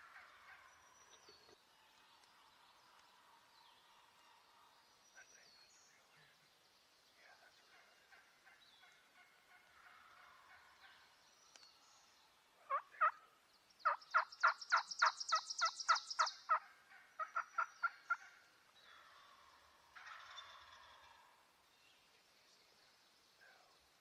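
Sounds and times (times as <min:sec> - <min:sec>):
turkey calling: 0:12.6 - 0:18.5, 0:19.1 - 0:21.3.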